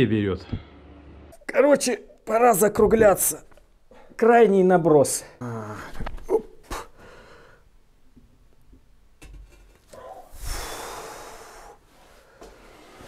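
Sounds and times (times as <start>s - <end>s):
men straining breath: 9.9s - 12.6s.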